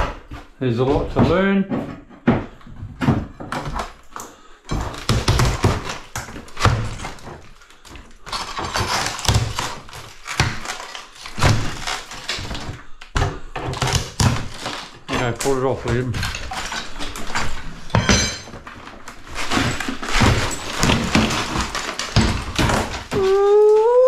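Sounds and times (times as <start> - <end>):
wrecking bar knocking wall sheeting: 4.7 - 23.6.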